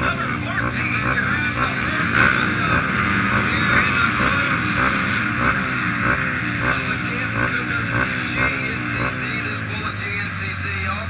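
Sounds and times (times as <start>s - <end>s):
atv engines idling and revving: 0.0s - 11.0s.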